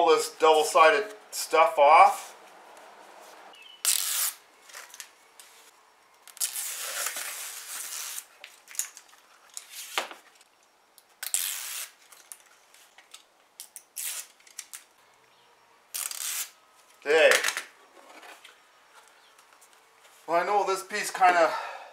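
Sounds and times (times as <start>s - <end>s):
release liner tearing off tape: 3.8s - 4.4s, 6.3s - 9.0s, 11.2s - 12.4s, 13.6s - 14.9s, 15.9s - 16.6s.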